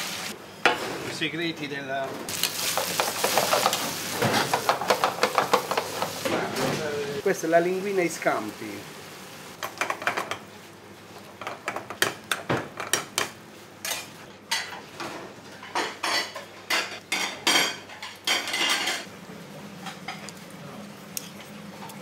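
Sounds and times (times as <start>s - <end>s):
metal pans clattering: 13.8s - 19.1s.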